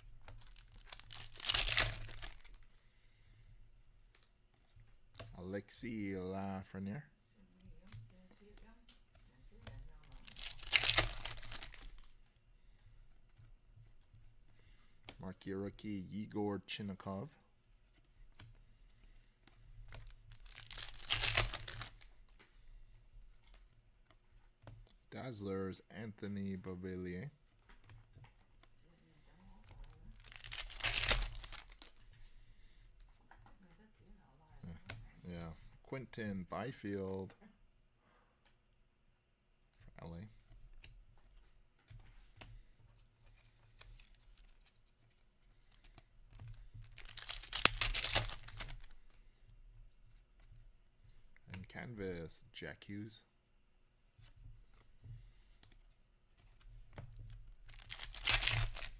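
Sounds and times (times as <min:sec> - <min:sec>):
foil wrapper tearing: 0:00.4 - 0:02.6, 0:10.2 - 0:12.0, 0:20.3 - 0:22.0, 0:30.1 - 0:31.9, 0:46.9 - 0:49.0, 0:57.7 - 0:58.9
cards sliding and rustling: 0:17.9 - 0:24.2, 0:30.2 - 0:32.3, 0:41.2 - 0:49.2, 0:57.7 - 0:58.9.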